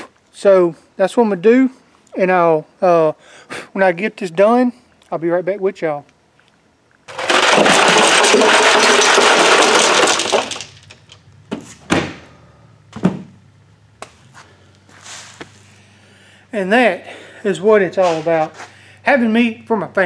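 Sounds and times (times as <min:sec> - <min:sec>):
ice cubes clattering in a cooler: 0:07.1 - 0:11.1.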